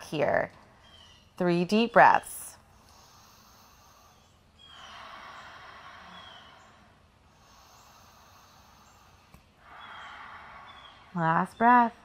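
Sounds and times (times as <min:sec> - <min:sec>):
woman breathing deeply: 0:02.6 - 0:11.2.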